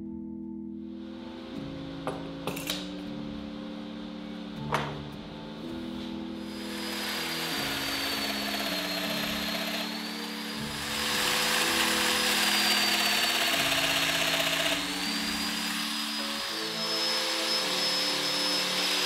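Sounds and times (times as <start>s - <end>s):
power tool motor whine: 6.4s - 19.0s.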